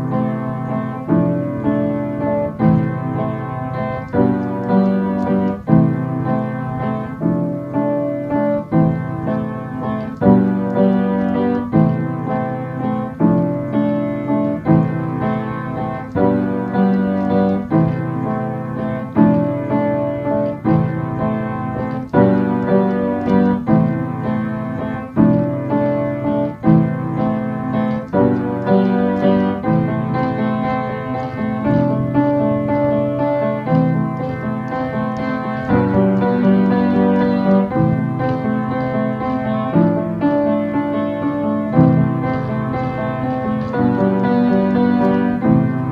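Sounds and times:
piano block chords: 0.0s - 45.9s.

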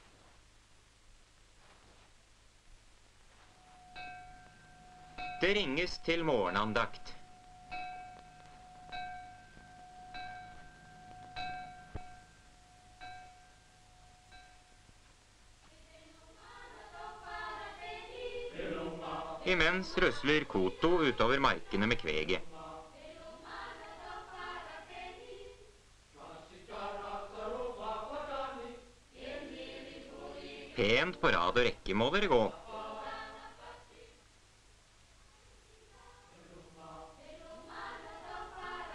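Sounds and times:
hand-rung metal bell: 7.3s - 14.8s
choir singing: 15.7s - 31.4s, 32.2s - 34.2s, 35.9s - 38.9s.

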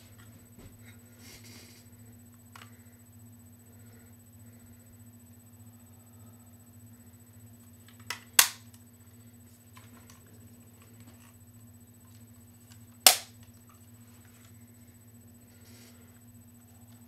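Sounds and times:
fan humming: 0.0s - 17.0s
objects cracking against fan: 7.7s - 8.9s, 12.0s - 14.6s.

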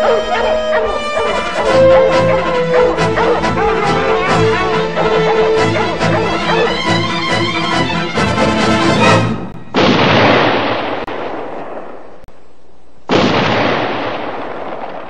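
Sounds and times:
music: 0.0s - 9.7s
crashing explosion bursts: 9.4s - 12.1s.

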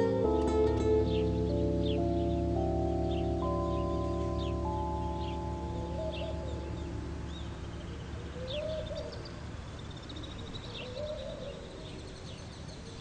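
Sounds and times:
small birds chirping: 0.0s - 13.0s
dove cooing: 3.2s - 13.0s.

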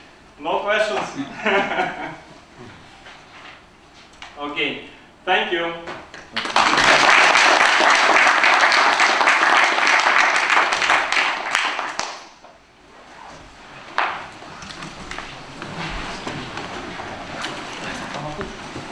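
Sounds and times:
audience applauding: 6.3s - 12.4s.

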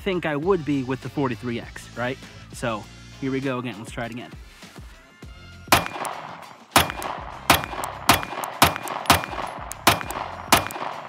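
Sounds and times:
pistol shots with echo: 5.7s - 11.0s.

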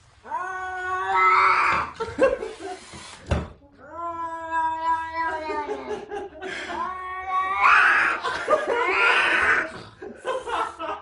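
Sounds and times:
cat yowling: 0.3s - 2.0s, 3.8s - 5.9s, 6.8s - 8.2s.

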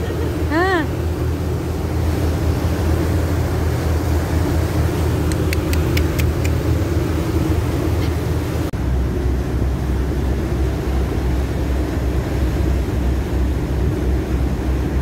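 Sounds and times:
low engine rumble: 0.0s - 15.0s
propeller wash churning: 0.0s - 15.0s
wind: 0.0s - 15.0s
short sharp ticks: 5.3s - 6.6s.

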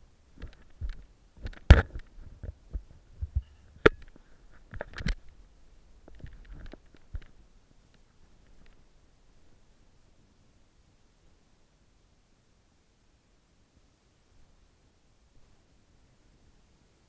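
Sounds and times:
camera handling knocks and rubbing: 0.4s - 5.2s.

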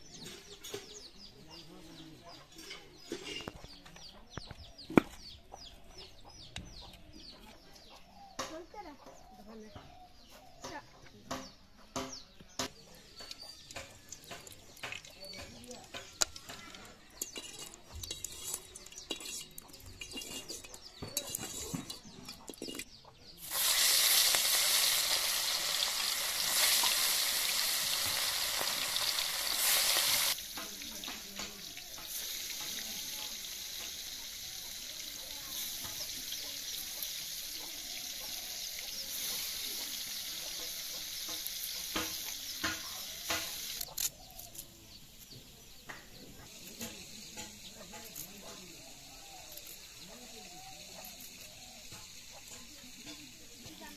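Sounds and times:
fish frying in hot oil: 23.4s - 44.2s, 46.4s - 53.9s.

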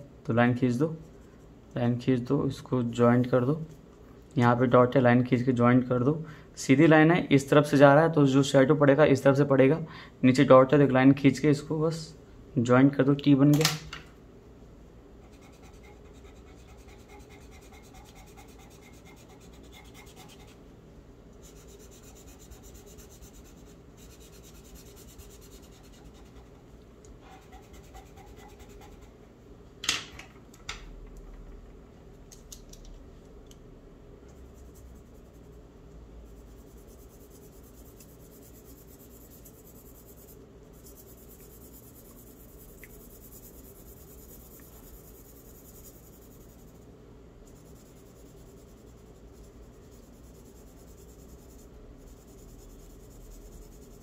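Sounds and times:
pencil scratching on paper: 15.2s - 20.6s, 21.4s - 29.2s, 36.2s - 54.0s.

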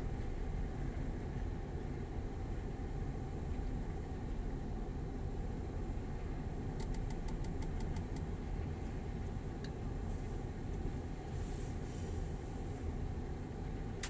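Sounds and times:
lorry diesel engine rumbling: 0.0s - 14.0s
brief hiss: 11.3s - 12.8s.

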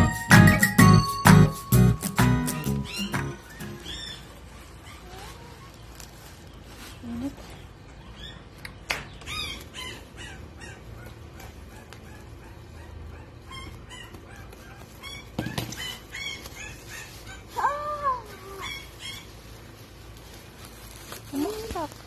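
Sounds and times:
plastic bag crinkling: 3.5s - 7.6s, 13.5s - 22.0s
small animal crying: 9.2s - 11.2s, 13.4s - 19.4s.

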